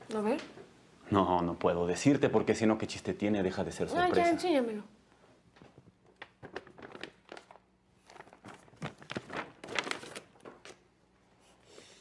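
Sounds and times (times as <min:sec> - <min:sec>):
paper bag rustling: 0:05.6 - 0:10.9.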